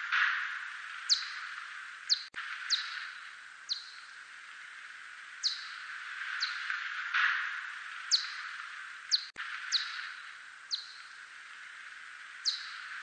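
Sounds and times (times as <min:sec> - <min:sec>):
steady hiss: 0:00.0 - 0:13.0
bat echolocation chirps: 0:00.6 - 0:04.2, 0:05.4 - 0:06.7, 0:07.6 - 0:11.3, 0:12.4 - 0:13.0.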